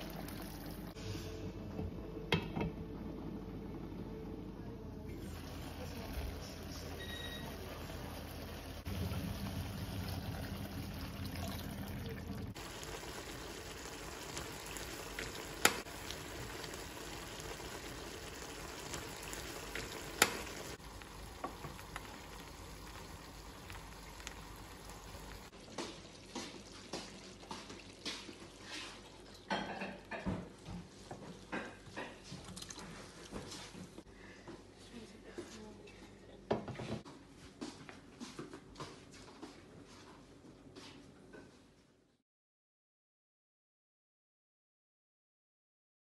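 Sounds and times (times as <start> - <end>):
stew sizzling in a pan: 12.5 - 32.2.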